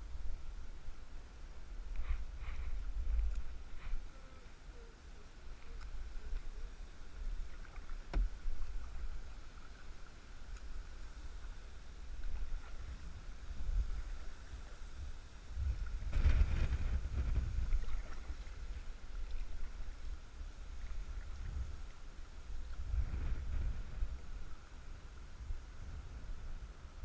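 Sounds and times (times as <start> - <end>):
wind rumble on microphone: 0.0 - 4.4, 5.4 - 27.0
paddle splashing water: 5.3 - 24.8.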